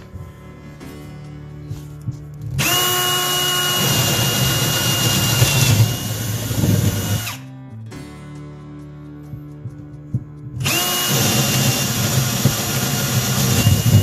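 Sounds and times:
cordless drill boring into wood: 0:02.6 - 0:07.4, 0:10.6 - 0:14.0.

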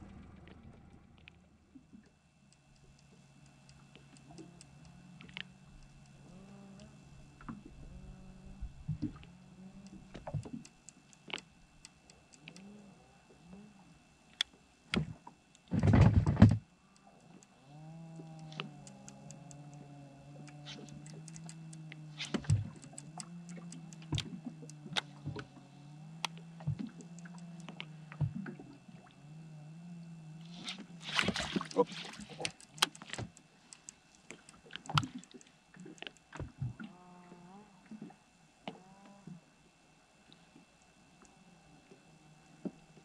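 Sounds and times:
boat motor running: 0:00.0 - 0:13.9, 0:15.2 - 0:38.1
light clicks: 0:09.0 - 0:12.7, 0:18.1 - 0:25.5, 0:30.6 - 0:36.5.

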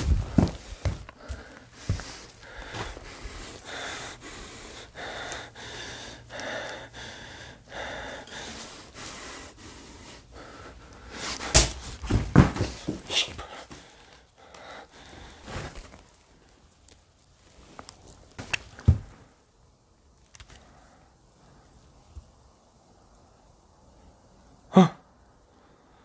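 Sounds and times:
debris crunching underfoot: 0:00.0 - 0:03.3
person breathing hard: 0:00.0 - 0:16.2, 0:24.7 - 0:26.0.

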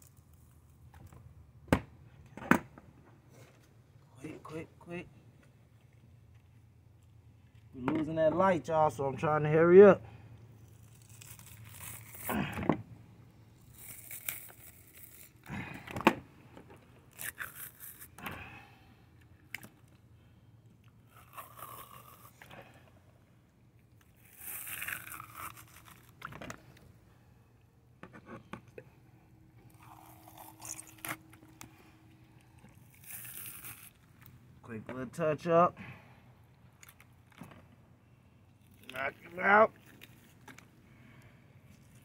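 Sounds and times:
fish skin tearing: 0:10.6 - 0:12.6, 0:13.6 - 0:15.8, 0:17.1 - 0:18.3, 0:21.0 - 0:22.8, 0:24.1 - 0:26.8, 0:29.6 - 0:34.3.

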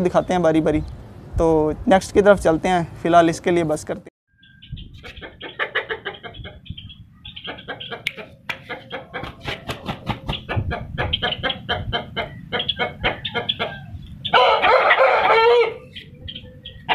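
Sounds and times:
chickens clucking: 0:04.5 - 0:16.9
rooster crowing: 0:12.7 - 0:15.9.

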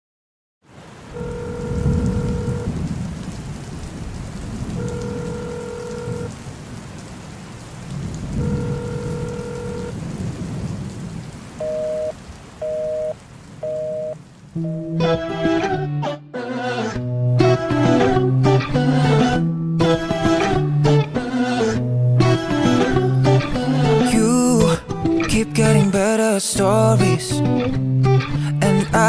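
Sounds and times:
steady rain: 0:00.6 - 0:15.4, 0:19.9 - 0:29.0
low thunder rumbles: 0:01.6 - 0:12.6.

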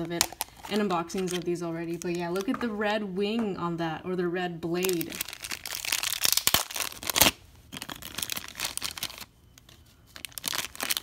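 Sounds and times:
plastic bag crinkling: 0:00.0 - 0:02.6, 0:04.8 - 0:11.0.

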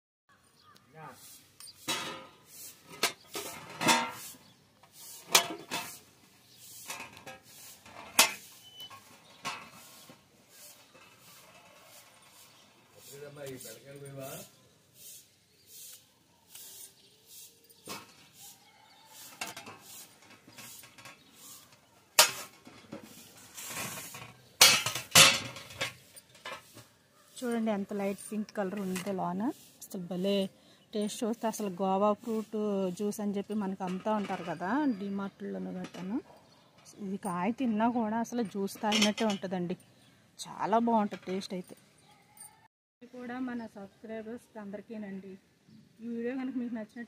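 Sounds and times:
knife scraping: 0:01.2 - 0:14.1
knife clinking on metal tray: 0:22.2 - 0:22.6, 0:24.6 - 0:26.7, 0:38.4 - 0:39.5.

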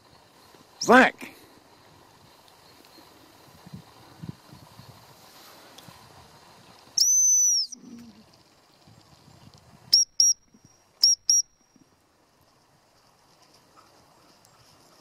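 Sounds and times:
dog training whistle blasts: 0:07.0 - 0:07.8, 0:09.9 - 0:11.6.

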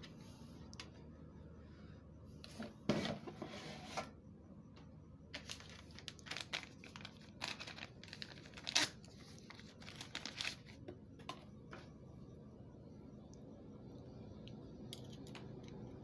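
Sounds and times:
plastic film crinkling: 0:05.4 - 0:10.8.

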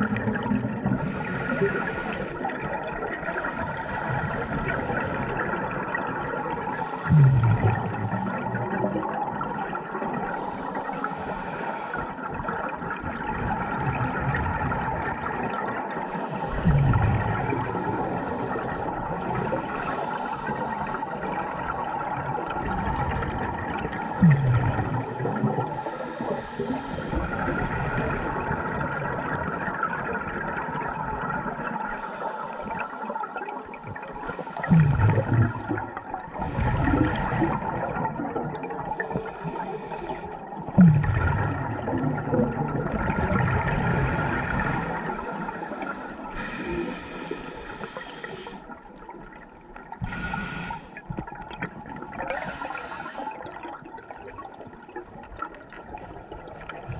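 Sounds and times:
regulator hissing inhalations: 0:01.0 - 0:02.5, 0:10.3 - 0:12.2, 0:17.6 - 0:20.7, 0:25.7 - 0:28.4, 0:38.9 - 0:40.4, 0:43.8 - 0:48.8, 0:50.0 - 0:51.0, 0:52.3 - 0:53.4
bubbling exhalations: 0:06.9 - 0:09.2, 0:22.6 - 0:28.9, 0:34.2 - 0:48.7.

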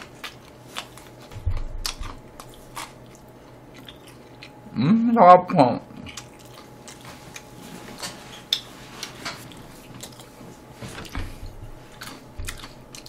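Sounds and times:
soft low thuds: 0:01.3 - 0:02.3.

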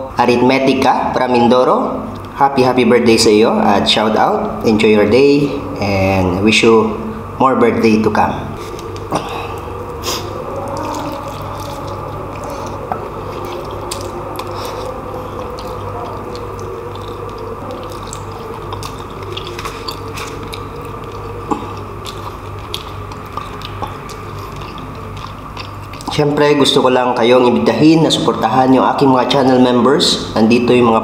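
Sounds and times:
steady low hum: 0:00.0 - 0:31.0
man chewing close to microphone: 0:02.0 - 0:02.4, 0:08.1 - 0:29.4.

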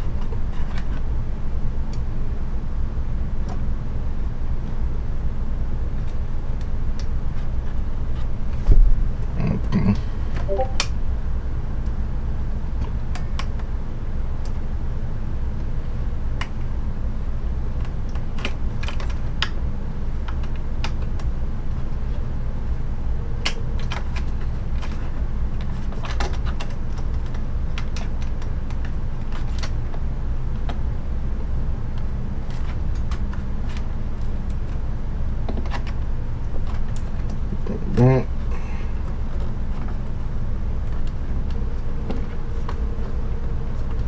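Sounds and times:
steady low hum: 0:00.0 - 0:44.0
computer parts clicking and tapping: 0:17.8 - 0:19.6, 0:23.4 - 0:30.8.

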